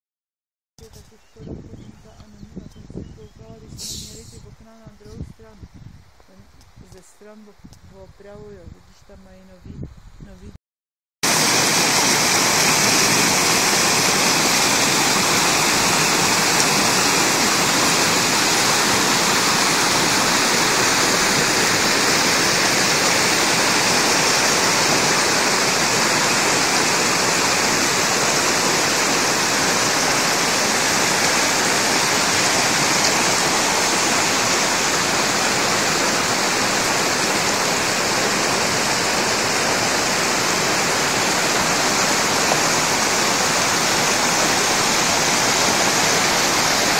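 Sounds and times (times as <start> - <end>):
stream rushing over rocks: 11.2 - 46.9.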